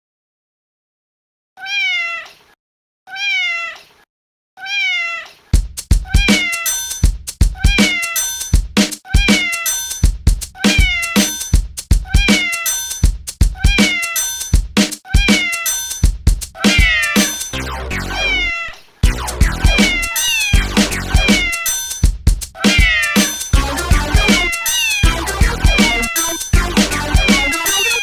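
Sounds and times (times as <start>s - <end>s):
cat meow: 1.6s - 6.7s, 7.5s - 8.2s, 9.0s - 9.7s, 10.6s - 11.3s, 12.0s - 12.7s, 13.5s - 14.2s, 15.0s - 15.7s, 16.6s - 17.4s, 18.1s - 18.8s, 19.6s - 21.7s, 22.6s - 23.4s, 24.5s - 26.4s
electronic beat with kick drum: 5.6s - 15.4s, 16.0s - 18.2s, 19.0s - 28.0s.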